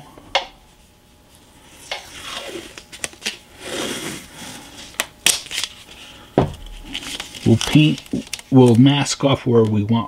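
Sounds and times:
tape tearing and rustling: 0:02.0 - 0:04.3, 0:04.9 - 0:06.0, 0:06.6 - 0:08.9.

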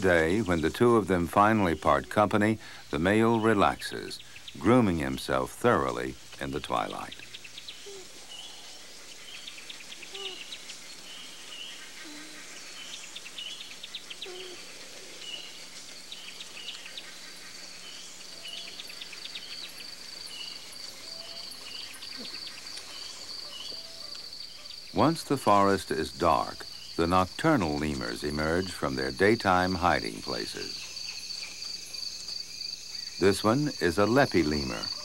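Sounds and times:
steady high insect trill: 0:00.0 - 0:35.0
faint low calls: 0:24.9 - 0:30.8.

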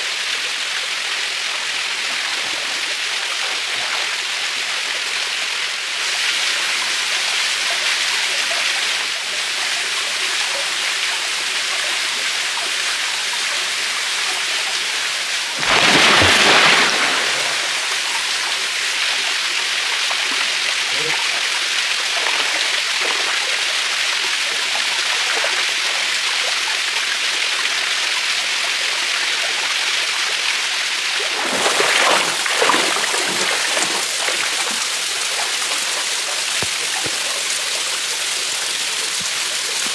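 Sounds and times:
waterfall splashing into pool: 0:00.3 - 0:06.8, 0:13.7 - 0:39.9
feet wading through water: 0:15.6 - 0:18.1, 0:31.2 - 0:37.4.

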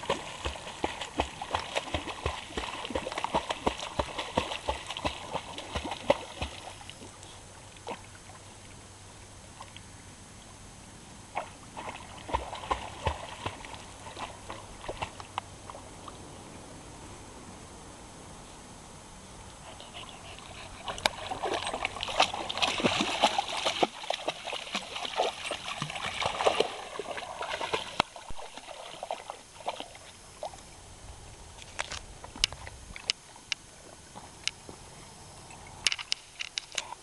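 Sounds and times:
puppy paws splashing in water: 0:00.0 - 0:07.2, 0:11.4 - 0:16.2, 0:19.7 - 0:30.6.

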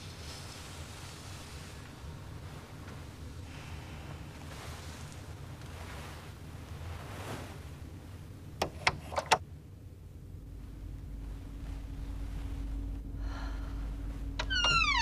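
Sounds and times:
steady low hum: 0:00.0 - 0:15.0
deep rumble: 0:09.4 - 0:15.0.

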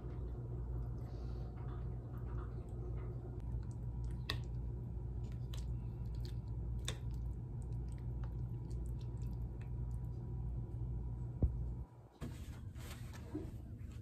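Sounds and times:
steady low hum: 0:00.0 - 0:14.0
spoon squishing through yogurt: 0:03.4 - 0:10.2.

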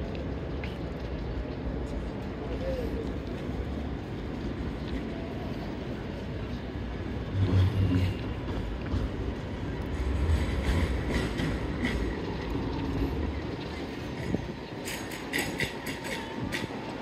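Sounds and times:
rumble of passing vehicles: 0:00.0 - 0:17.0.

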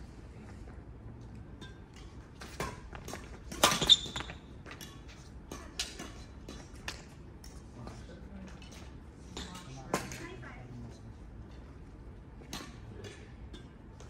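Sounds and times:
racket hitting shuttlecock: 0:01.6 - 0:07.2.

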